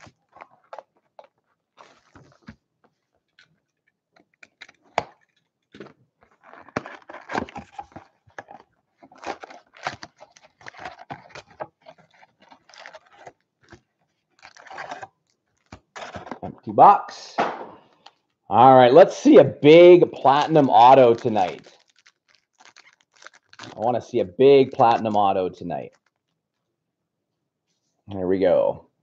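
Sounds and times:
foil packs rustling: 0.0 - 3.2, 4.6 - 16.5, 20.1 - 26.2
plastic wrap crackling: 0.0 - 16.5, 20.1 - 26.4
cardboard box opening: 4.2 - 16.5.

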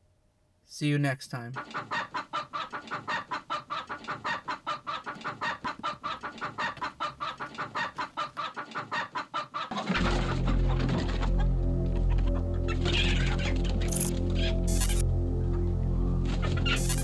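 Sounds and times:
chicken clucking: 1.5 - 15.0, 16.3 - 17.0
music with deep bass: 10.0 - 17.0.

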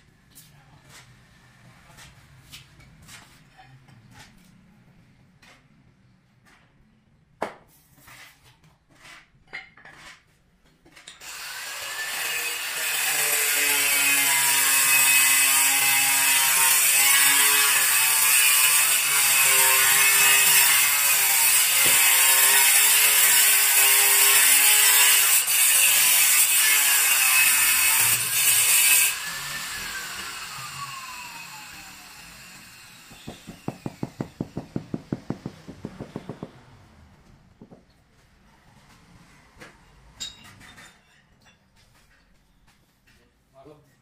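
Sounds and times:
electric cutter cutting marble: 11.2 - 35.4
knocks: 33.1 - 36.6, 37.6 - 37.9.

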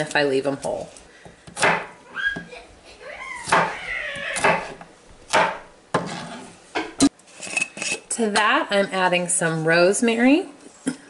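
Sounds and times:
knife chopping on plastic board: 1.2 - 2.5, 3.4 - 3.8, 4.4 - 6.2
high rising and falling cries: 2.0 - 4.6.

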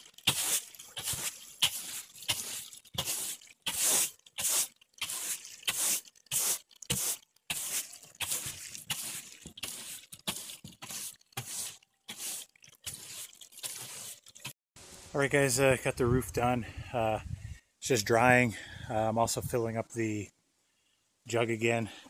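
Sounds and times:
broom scrubbing wet roof: 0.0 - 14.6.

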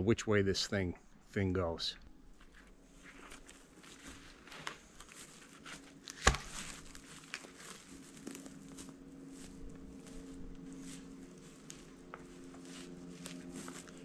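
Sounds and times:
faint steady hum: 0.0 - 14.0
twigs and leaves crackling: 2.3 - 14.0
sharp woody crack: 6.1 - 6.8.

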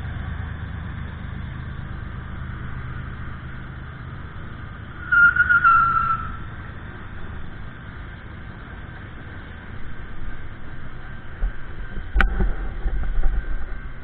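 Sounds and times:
freight train rumbling past: 0.0 - 14.0
high-pitched train squeal: 5.0 - 6.6.

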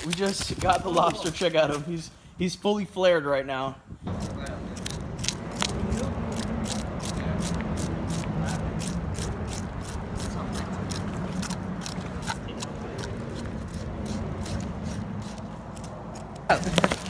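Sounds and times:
knife sawing through fish: 4.2 - 16.3.

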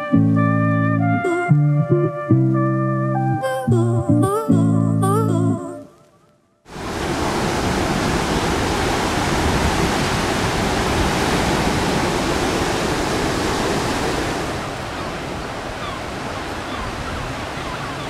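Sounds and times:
sea surf breaking on beach: 6.7 - 18.0.

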